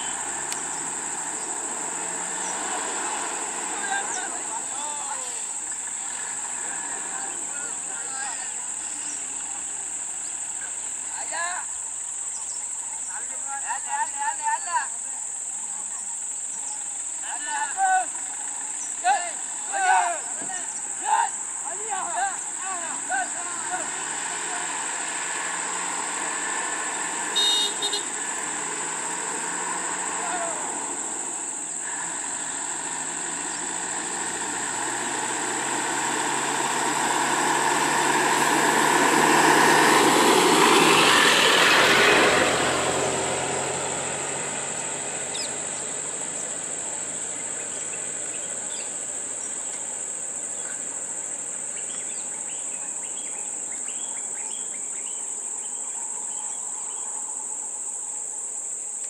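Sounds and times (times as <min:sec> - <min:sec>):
vehicle horn toots: 0:00.0 - 0:00.4, 0:27.3 - 0:28.3
vehicle engine passing: 0:00.0 - 0:58.4.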